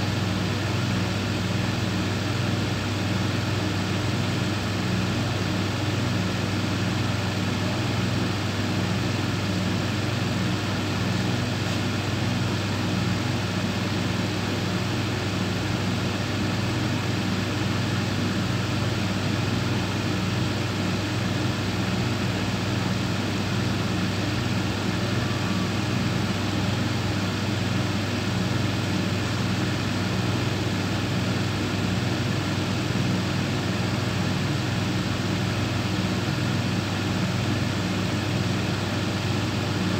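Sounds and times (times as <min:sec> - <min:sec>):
thicknesser machine hum: 0:00.0 - 0:39.9.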